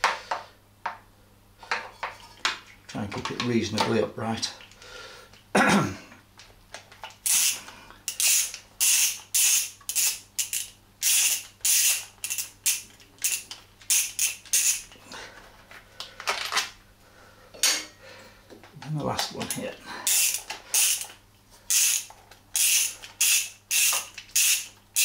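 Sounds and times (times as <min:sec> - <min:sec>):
hand ratchet clicking: 0:07.2 - 0:15.0, 0:20.1 - 0:25.0.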